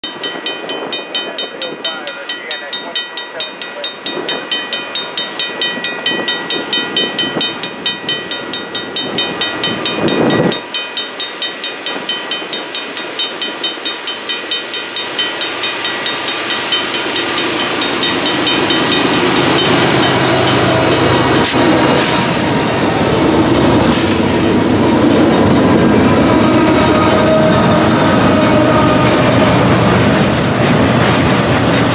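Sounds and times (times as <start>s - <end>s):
level-crossing bell ringing: 0.0s - 21.5s
diesel locomotives rumbling: 0.0s - 31.9s.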